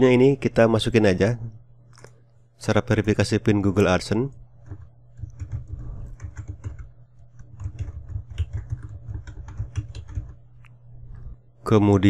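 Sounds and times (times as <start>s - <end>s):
steady low hum: 0.0s - 12.0s
typing on a keyboard: 4.6s - 10.4s.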